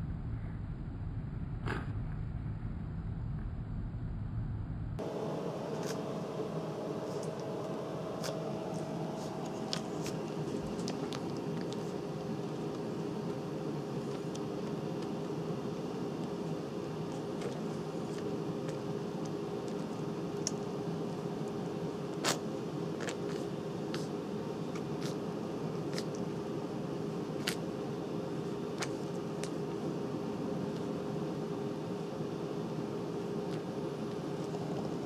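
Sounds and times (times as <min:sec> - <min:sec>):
mechanical hum: 0:00.0 - 0:35.0
puppies suckling: 0:08.2 - 0:15.4.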